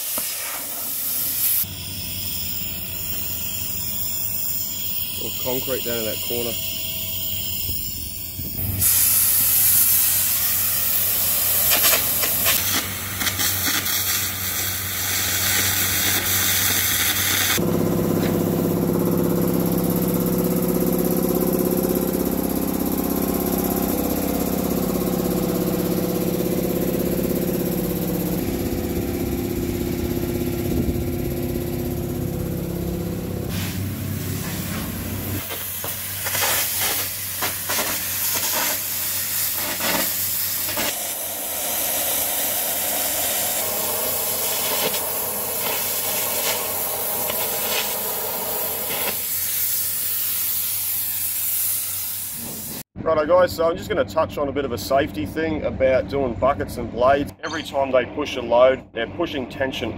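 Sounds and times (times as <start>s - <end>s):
loud hissing and crackling: 0.0s - 17.6s, 33.5s - 52.8s
air compressor humming: 0.0s - 52.9s.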